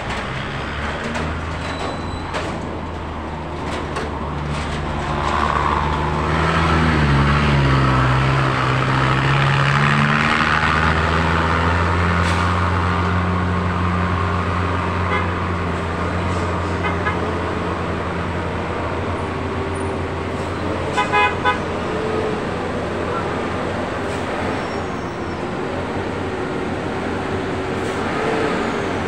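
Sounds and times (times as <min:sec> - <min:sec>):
trucks and cars passing: 0:00.0 - 0:29.0
vehicle horn toots: 0:15.1 - 0:15.4, 0:16.8 - 0:17.3, 0:20.9 - 0:21.7.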